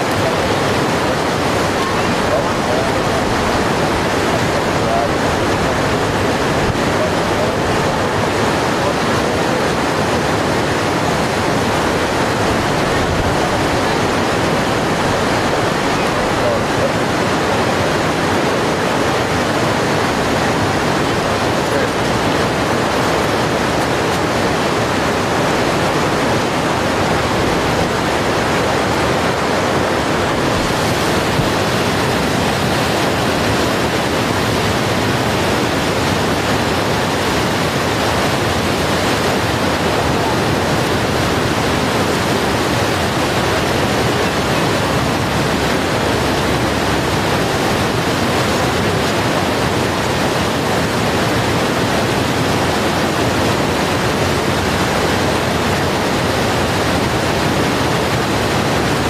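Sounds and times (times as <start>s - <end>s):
river rapids rushing: 0.0s - 59.0s.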